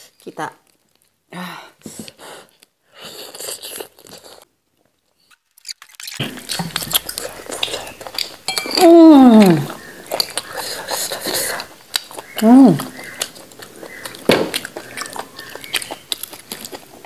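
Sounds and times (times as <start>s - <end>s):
chewing: 1.8s - 17.0s
tableware clinking: 8.5s - 9.0s.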